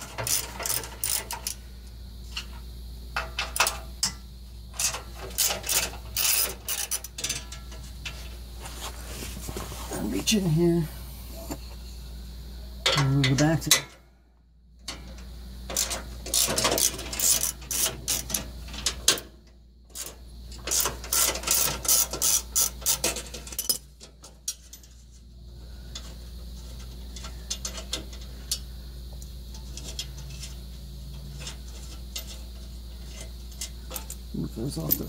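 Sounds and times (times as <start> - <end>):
ratchet wrench clicking: 0.0 - 1.6, 4.8 - 7.8, 15.7 - 19.0, 20.0 - 23.8.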